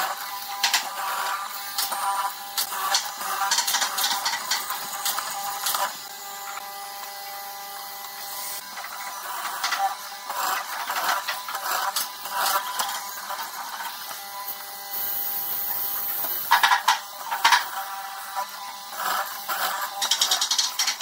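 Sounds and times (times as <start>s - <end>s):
mortising machine motor hum: 8.0s - 16.7s
chisel boring into wood: 8.7s - 21.0s.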